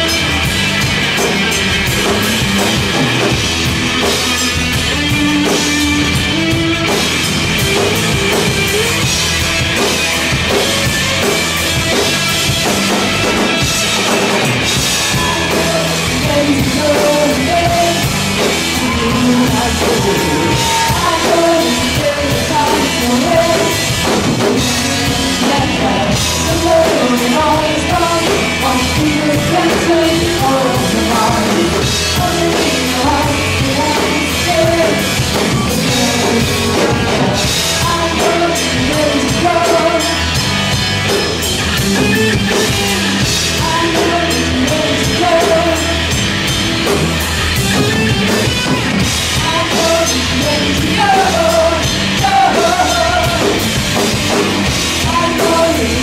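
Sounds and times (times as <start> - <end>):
drum kit beat: 0.0 - 56.0
rock band playing: 0.0 - 56.0
person singing: 14.6 - 40.6, 42.0 - 46.3, 47.6 - 56.0.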